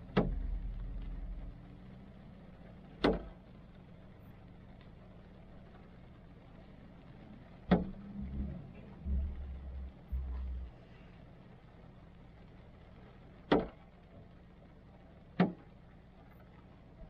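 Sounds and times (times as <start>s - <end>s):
low rumble: 0.0s - 2.8s, 6.0s - 11.8s
steady low hum: 0.0s - 12.5s
heavy raindrops knocking on car: 0.0s - 17.0s.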